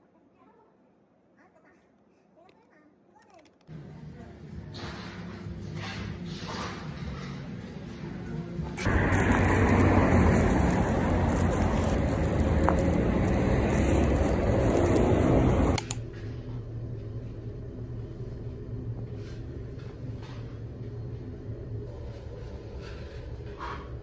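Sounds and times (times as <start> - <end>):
street noise rush: 8.8 - 16.0
elevator hum: 8.8 - 23.6.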